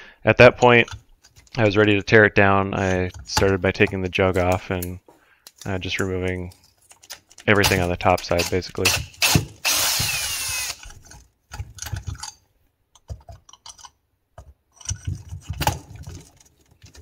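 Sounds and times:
power drill whining: 9.2s - 10.9s.

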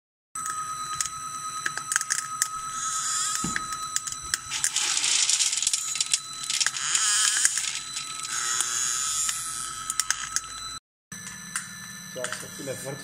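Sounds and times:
steady high whine: 0.4s - 13.0s
seeds clicking and rattling: 4.5s - 8.7s.

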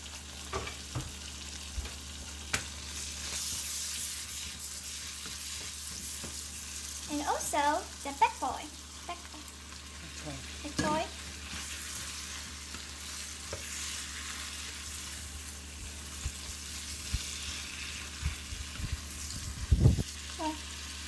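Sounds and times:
food sizzling in frying pan: 0.0s - 21.0s
spatula stirring: 2.5s - 7.1s, 10.8s - 15.3s.

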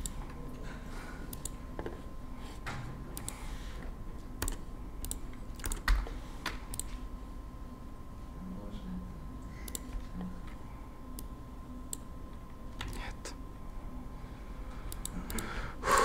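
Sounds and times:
computer keyboard clicks: 4.4s - 6.0s, 12.8s - 13.0s.

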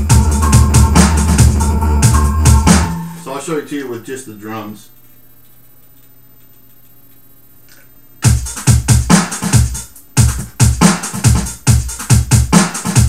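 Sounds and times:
dubstep drum beat: 0.0s - 3.5s, 8.2s - 13.0s.

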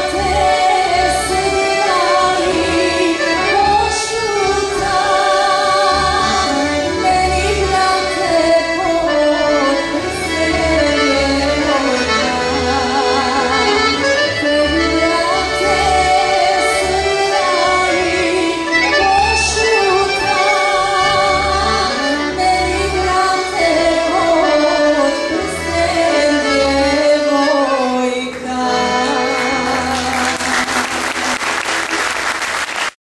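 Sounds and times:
woman singing with vibrato: 0.0s - 31.0s
accordions playing: 0.0s - 33.0s
applause: 29.9s - 33.0s.

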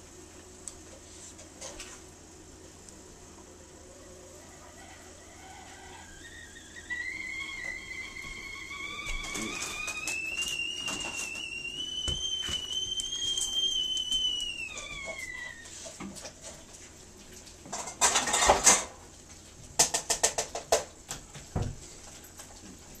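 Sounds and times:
high whistle-like whine: 4.5s - 15.7s
metal bowl scraping on tile: 17.8s - 18.9s.

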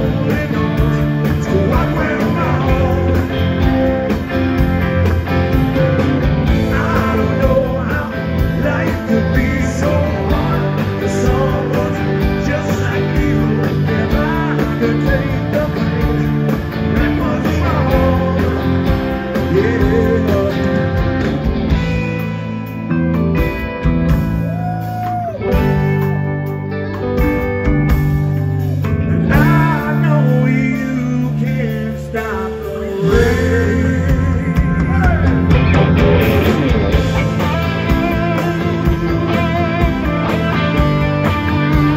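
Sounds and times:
steady drum beat: 0.0s - 22.8s, 33.0s - 41.9s
bass: 0.0s - 41.9s
blues-rock band playing: 0.0s - 41.9s
electric guitar: 0.0s - 41.9s.

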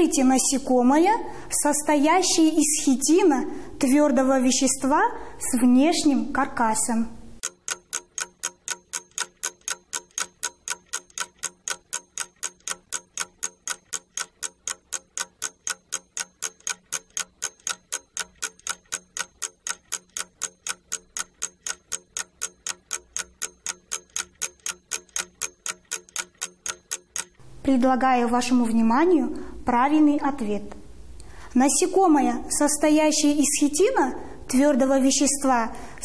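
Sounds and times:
fast clock ticking: 7.4s - 27.4s.

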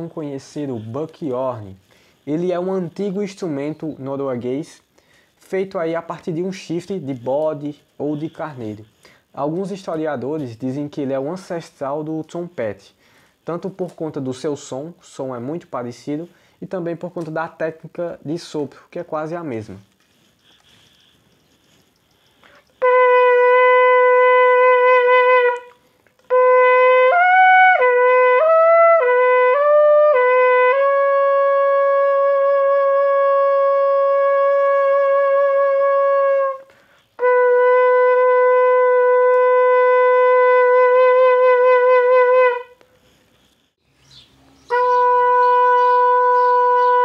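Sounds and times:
goat-horn trumpet blasts: 8.0s - 8.8s, 22.8s - 42.8s, 44.7s - 47.0s.

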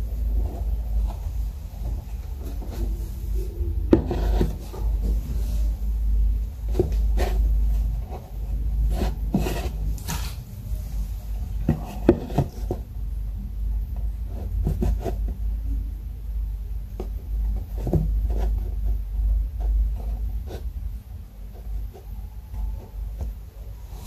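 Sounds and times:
low rumble: 0.0s - 14.4s.

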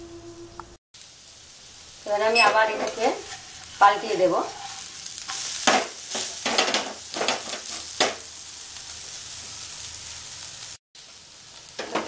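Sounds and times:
batter sizzling in oil: 1.0s - 12.0s
metal spatula scraping frying pan: 4.6s - 8.1s.

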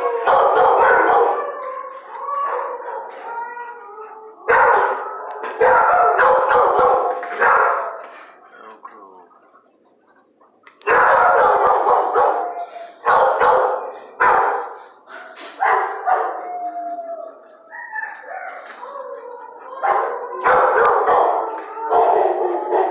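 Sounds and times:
dogs barking: 0.0s - 3.3s, 4.4s - 8.3s, 10.7s - 16.7s, 18.1s - 22.9s
dogs howling: 0.0s - 8.3s, 10.8s - 14.0s, 15.6s - 22.9s.

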